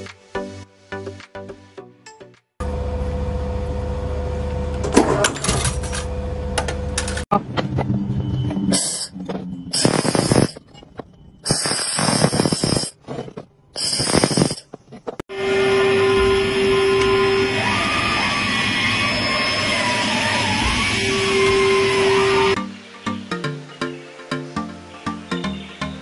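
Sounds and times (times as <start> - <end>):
laser welder hissing and crackling: 9.8 - 10.6, 11.4 - 13.0, 13.8 - 14.6
machine hum: 13.6 - 22.6.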